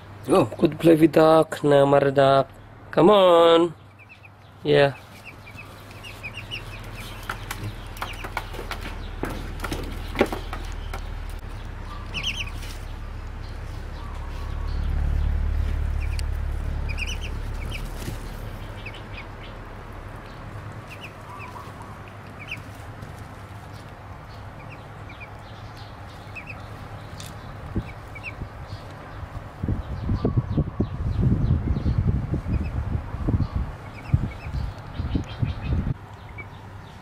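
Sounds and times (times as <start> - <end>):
duckling peeping: 3.7 - 37.0
low rumble: 9.0 - 25.5.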